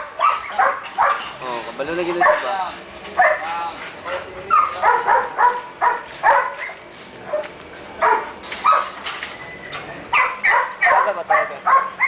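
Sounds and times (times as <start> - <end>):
dog barking: 0.0 - 1.3, 2.1 - 2.5, 3.2 - 9.0, 10.1 - 12.0.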